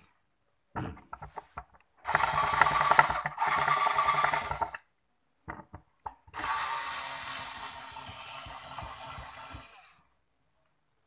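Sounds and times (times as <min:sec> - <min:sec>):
cordless drill grinding: 0:01.3 - 0:04.9, 0:06.3 - 0:10.1.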